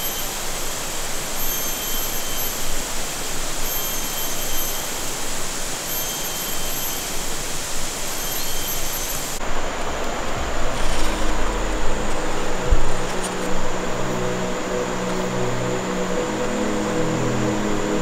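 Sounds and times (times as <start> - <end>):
outdoor rushing hiss: 0.0 - 18.0
thin high tone: 0.0 - 18.0.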